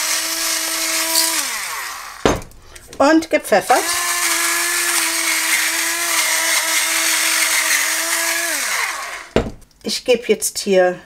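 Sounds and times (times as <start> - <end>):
electric pepper mill grinding: 0.0 - 2.2, 3.7 - 9.4
low thump: 2.2 - 2.6, 9.4 - 9.6.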